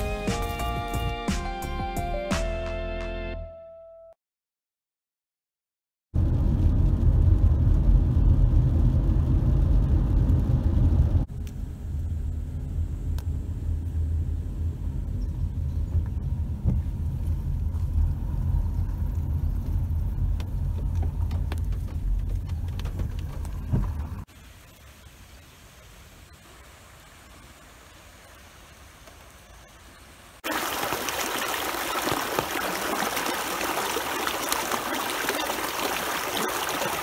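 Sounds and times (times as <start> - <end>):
tyre and engine rumble: 6.2 - 24.3
faint hiss: 24.2 - 31.7.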